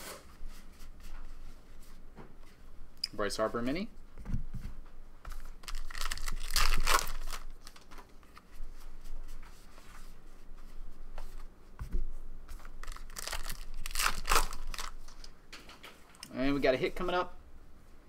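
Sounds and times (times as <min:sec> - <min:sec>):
cards rustling: 0:05.3 - 0:08.5, 0:12.6 - 0:15.3
foil wrapper crinkling and ripping: 0:05.6 - 0:08.0, 0:12.8 - 0:15.2.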